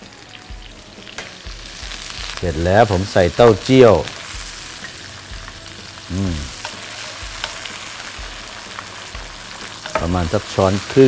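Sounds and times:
oil sizzling in a wok: 0.0 - 11.0
short vocal sound: 6.1 - 6.5.

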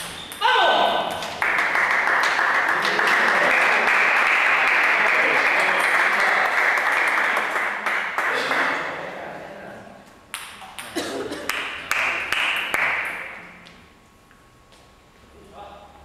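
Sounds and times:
spectators applauding: 1.4 - 8.8, 11.4 - 13.2.

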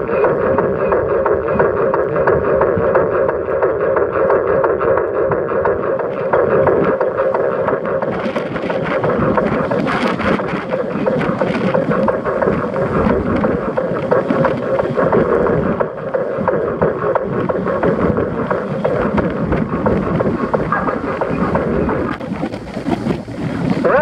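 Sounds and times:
wind rushing over microphone: 4.9 - 24.0.

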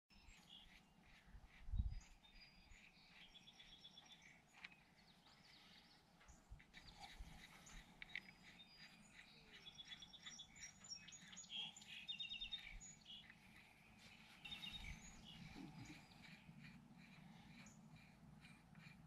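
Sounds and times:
bird trills: 0.1 - 19.0
small birds chirping: 0.1 - 19.0.

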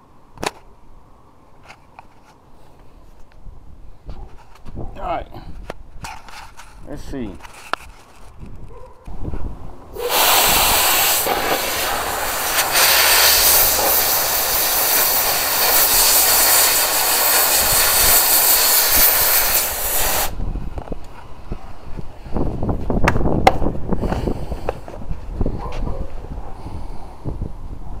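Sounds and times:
compressed air hissing from nozzle: 10.0 - 20.4.

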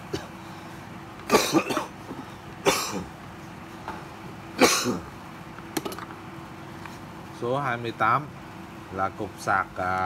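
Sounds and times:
person coughing: 0.1 - 0.4, 1.3 - 2.0, 2.6 - 3.1, 4.6 - 5.1.

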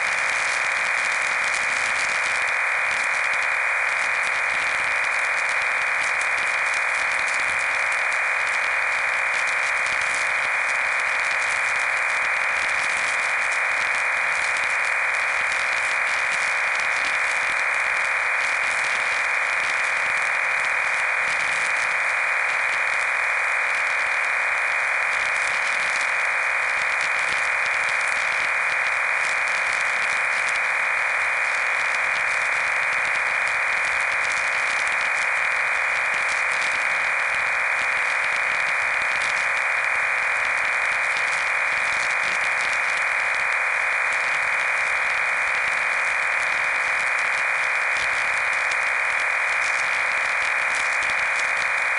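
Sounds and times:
radio static hiss: 0.0 - 51.9.

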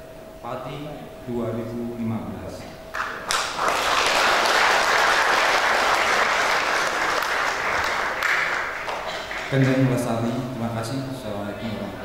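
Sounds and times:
audience applauding: 3.0 - 10.1.

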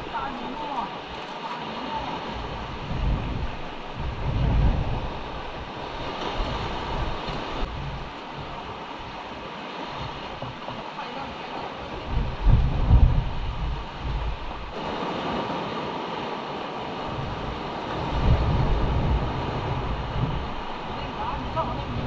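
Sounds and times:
sea surf on rocky shore: 0.0 - 22.0
deep rumbling surges: 2.2 - 8.8, 17.0 - 22.0.

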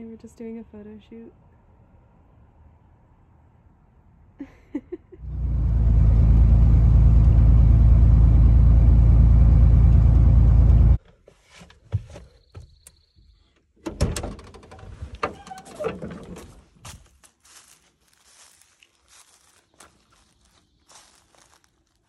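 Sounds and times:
vehicle rumble from inside cabin: 5.2 - 11.0.

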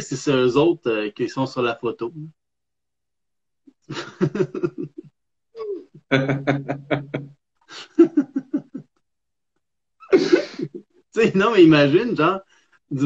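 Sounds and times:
men laughing: 3.9 - 5.1, 6.1 - 8.8, 10.1 - 10.8.

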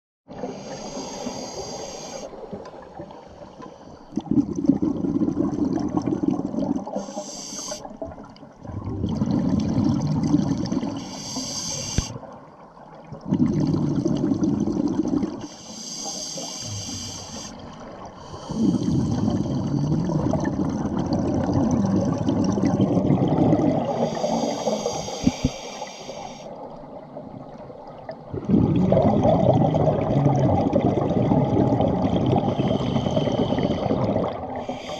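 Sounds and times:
regulator hissing inhale: 0.4 - 2.4, 7.0 - 7.9, 11.0 - 12.2, 15.4 - 17.6, 18.2 - 19.9, 24.0 - 26.6, 32.5 - 34.9
exhaled bubbles rushing: 4.1 - 7.0, 8.0 - 11.0, 13.1 - 15.5, 17.6 - 24.5, 26.8 - 34.9.

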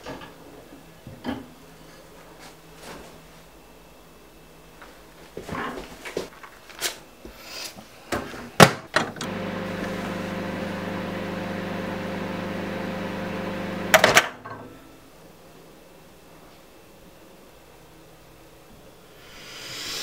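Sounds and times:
microwave oven humming: 8.9 - 14.5.

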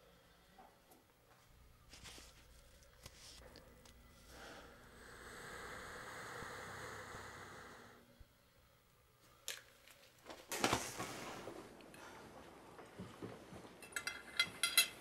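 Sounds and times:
nebulizer mask hissing: 4.3 - 8.0.

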